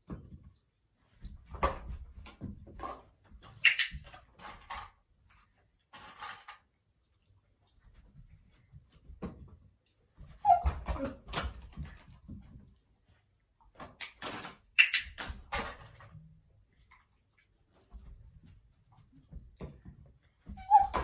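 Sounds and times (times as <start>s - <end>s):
dog whimpering: 10.3s - 11.2s, 20.4s - 21.0s.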